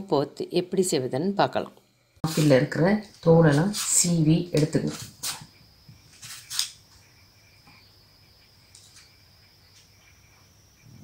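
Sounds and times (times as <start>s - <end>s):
faint high whine: 0.0s - 11.0s
vegetable peeler scraping apple: 6.2s - 6.8s.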